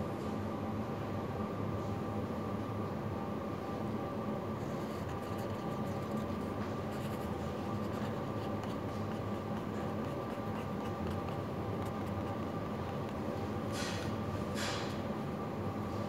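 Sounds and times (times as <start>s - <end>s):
low background hum: 0.0s - 16.0s
pen scratching on paper: 4.8s - 13.3s.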